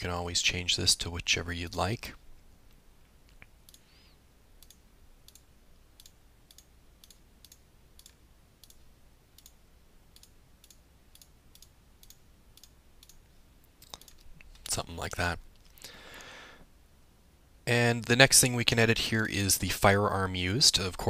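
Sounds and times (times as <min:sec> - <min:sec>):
on-screen keyboard clicks: 0:04.6 - 0:08.8, 0:09.4 - 0:09.6, 0:10.2 - 0:13.2.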